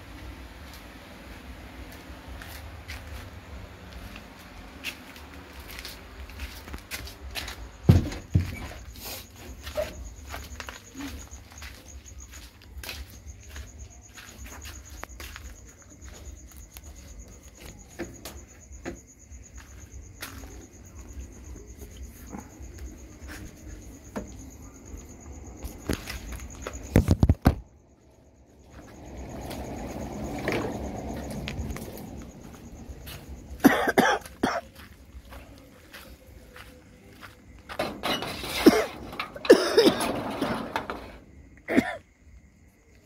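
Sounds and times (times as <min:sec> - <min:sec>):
person walking and shuffling: 0:00.0 - 0:18.7, 0:19.3 - 0:38.0
insects trilling: 0:00.2 - 0:43.0
clattering: 0:37.8 - 0:41.3.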